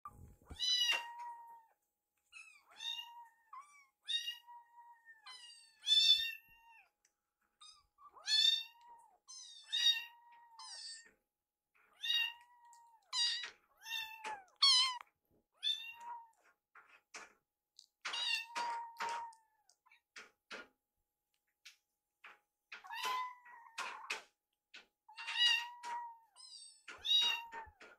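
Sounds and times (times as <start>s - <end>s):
kitten meowing: 12.0s - 15.0s, 15.6s - 16.4s, 22.8s - 24.1s, 25.1s - 27.9s.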